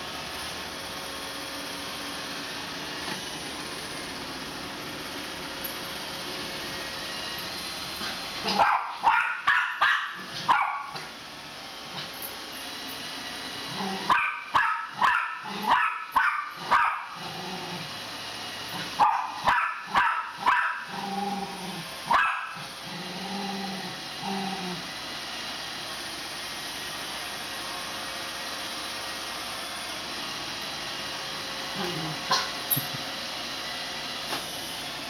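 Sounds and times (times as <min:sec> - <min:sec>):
robot vacuum humming: 0:00.0 - 0:35.0
dog barking: 0:08.4 - 0:11.0, 0:14.1 - 0:17.2, 0:19.0 - 0:20.9, 0:22.1 - 0:22.6
dog growling: 0:13.7 - 0:14.1, 0:15.4 - 0:15.8, 0:17.1 - 0:17.9, 0:20.8 - 0:21.9, 0:22.6 - 0:24.8, 0:31.8 - 0:33.0.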